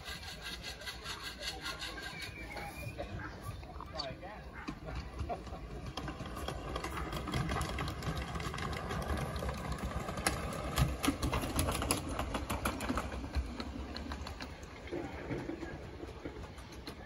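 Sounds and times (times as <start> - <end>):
miniature locomotive running past: 0.0 - 3.2, 4.7 - 17.0
wheels clicking over track: 4.5 - 17.0.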